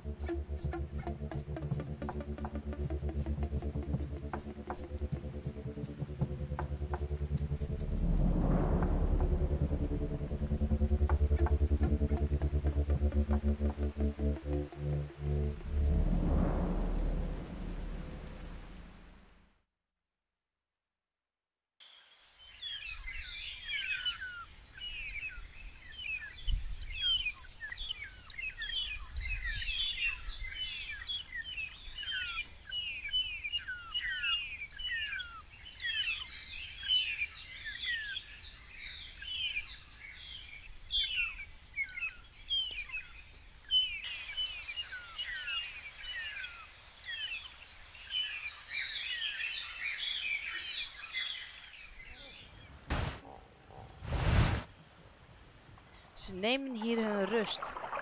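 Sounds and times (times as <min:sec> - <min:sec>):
soft rushing noise: 0:05.6 - 0:11.6, 0:14.7 - 0:19.4, 0:52.8 - 0:53.2, 0:54.0 - 0:54.8.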